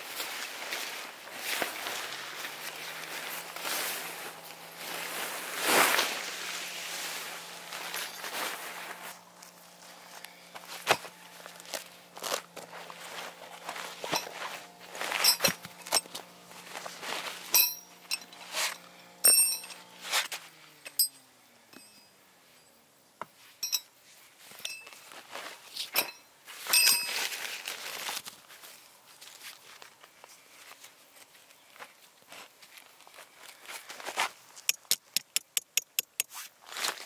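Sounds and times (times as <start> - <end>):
metal clinking and knocking: 15.1 - 16.2, 19.3 - 19.8, 23.6 - 23.9.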